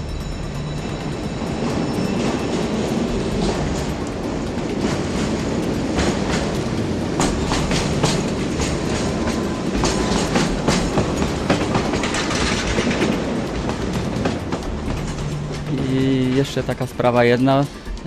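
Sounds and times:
train rumbling: 0:00.0 - 0:18.0
wheels clacking over rails: 0:00.0 - 0:18.0.

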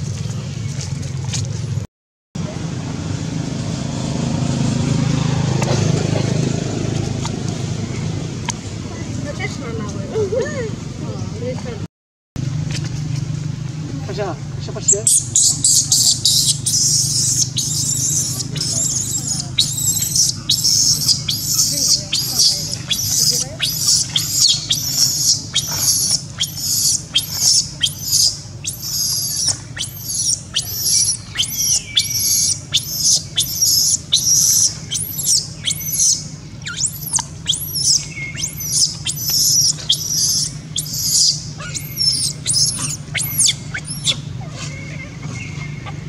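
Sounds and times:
infant monkey screeching: 0:15.0 - 0:46.0.

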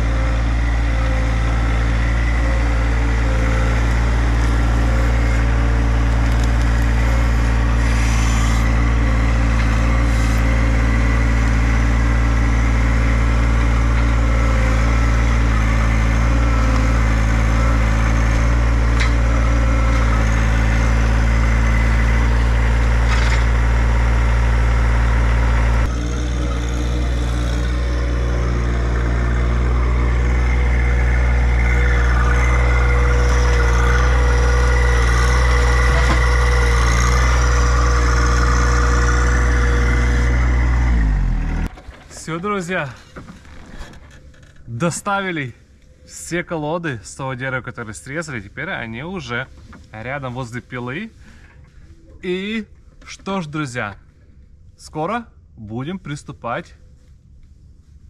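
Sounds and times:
tractor diesel engine running: 0:00.0 - 0:45.9.

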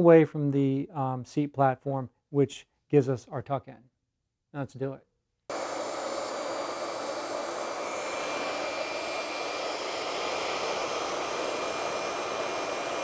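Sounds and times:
electric cloth cutter whirring: 0:05.5 - 0:13.0.

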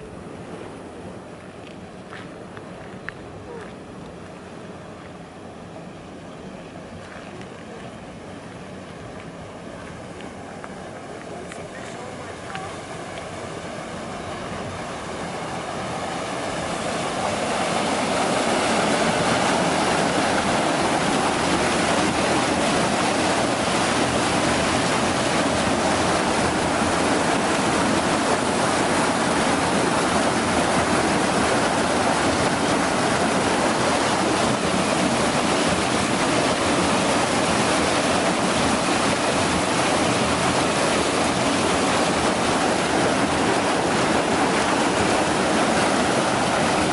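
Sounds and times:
water rushing over a weir: 0:00.0 - 0:46.9.

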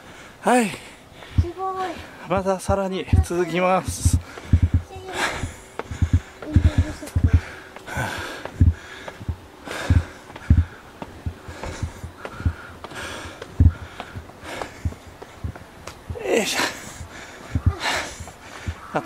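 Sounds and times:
footsteps on concrete steps: 0:00.1 - 0:19.0
man breathing hard: 0:04.1 - 0:18.9.

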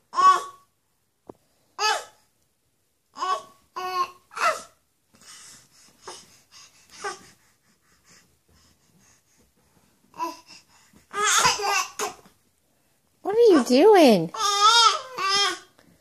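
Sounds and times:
baby babbling: 0:00.1 - 0:00.6, 0:03.2 - 0:04.8, 0:10.1 - 0:10.5, 0:11.1 - 0:12.2, 0:14.3 - 0:15.7.

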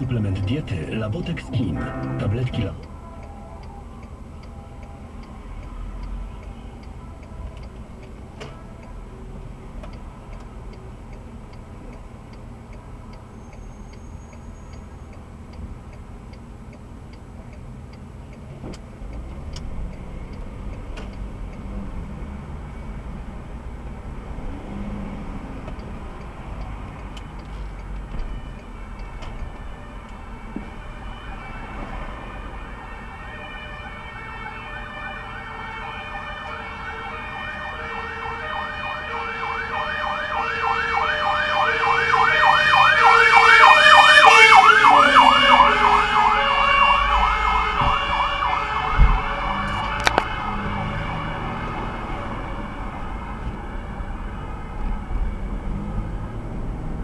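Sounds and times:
low two-note siren tone: 0:01.5 - 0:04.8, 0:28.2 - 0:56.2
fire engine siren yelping: 0:28.1 - 0:55.6.

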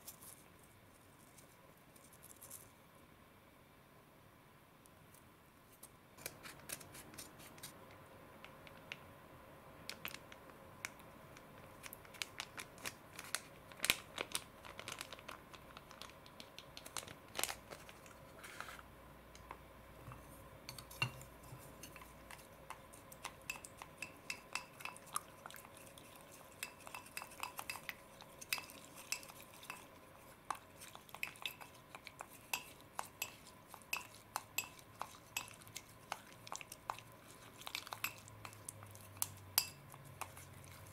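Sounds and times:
chopsticks clinking against glass bowl: 0:20.7 - 0:29.9, 0:30.5 - 0:37.0, 0:37.6 - 0:40.4.

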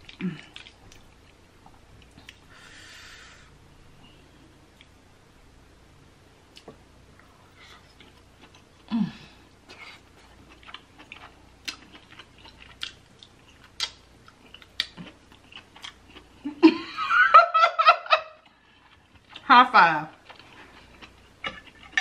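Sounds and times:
close chewing with mouth smacks: 0:00.0 - 0:02.5, 0:07.6 - 0:08.9, 0:09.5 - 0:16.4, 0:18.4 - 0:19.5, 0:20.1 - 0:22.0.

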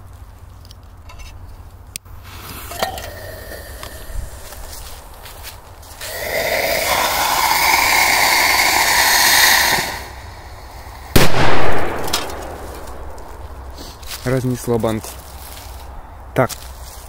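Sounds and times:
pyrotechnic charge hissing: 0:02.2 - 0:13.8
firecracker blast: 0:06.0 - 0:13.8.

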